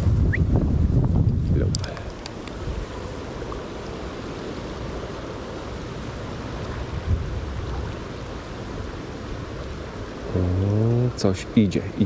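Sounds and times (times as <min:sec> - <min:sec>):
wind on microphone: 0:00.0 - 0:11.2
river water rushing: 0:01.8 - 0:12.0.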